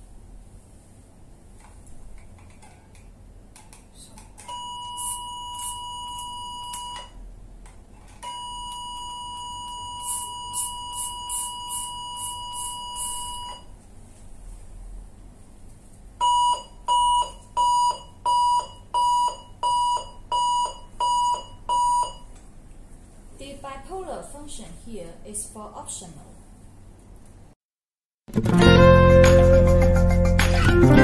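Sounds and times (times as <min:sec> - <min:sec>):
loud alarm beeps: 0:04.5 - 0:07.1, 0:08.3 - 0:13.7, 0:16.2 - 0:22.3
high steady activation tone: 0:04.5 - 0:07.2, 0:08.3 - 0:13.8.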